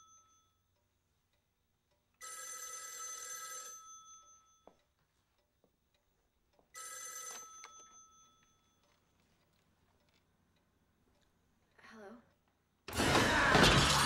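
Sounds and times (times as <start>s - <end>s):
telephone ringing: 2.2s - 4.8s, 6.8s - 9.0s.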